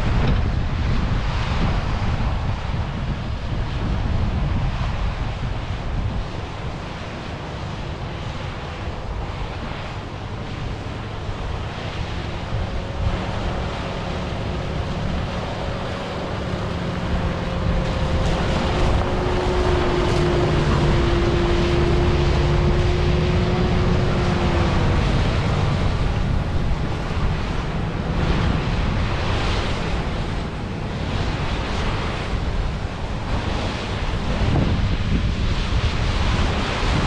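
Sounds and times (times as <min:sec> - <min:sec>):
wind buffeting microphone: 0:00.0 - 0:37.0
steady machine whine: 0:06.0 - 0:37.0
heavy machinery running: 0:08.9 - 0:37.0.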